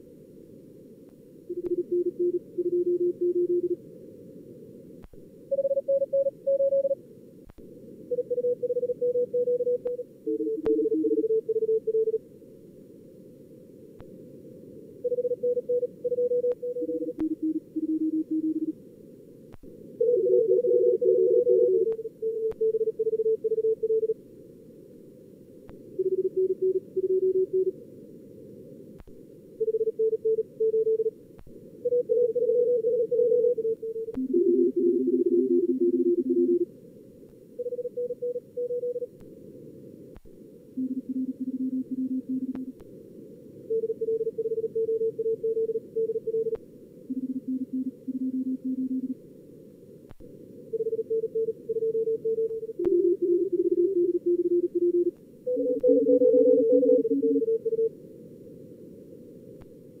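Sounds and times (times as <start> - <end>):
morse code tones: 31.9 - 36.6, 50.8 - 57.9.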